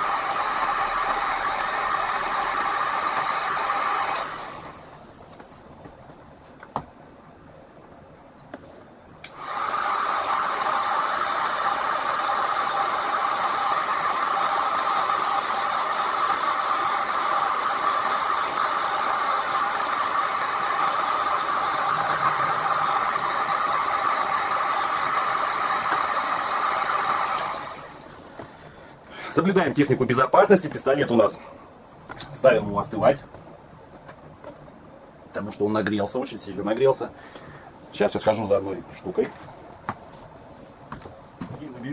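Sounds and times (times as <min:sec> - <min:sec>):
heat gun running: 0:00.0 - 0:05.2, 0:09.2 - 0:28.5.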